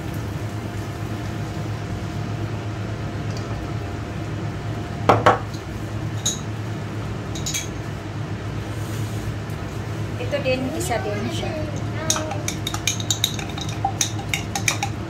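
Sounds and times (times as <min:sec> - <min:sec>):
glass jar knocking on counter: 0:05.1 - 0:05.4.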